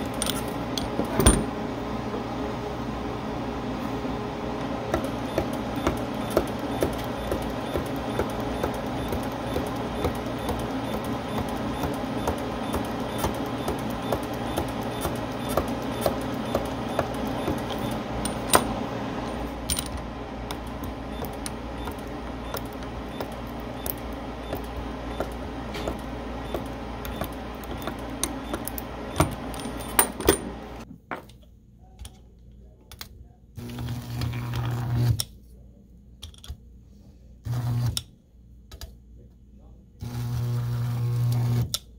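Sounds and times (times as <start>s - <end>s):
steady hum: 0.0s - 30.9s.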